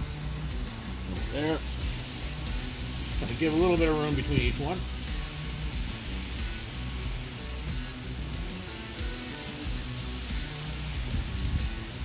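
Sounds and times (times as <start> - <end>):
background music with bass: 0.0 - 12.0
skewers sizzling on a grill: 0.0 - 12.0.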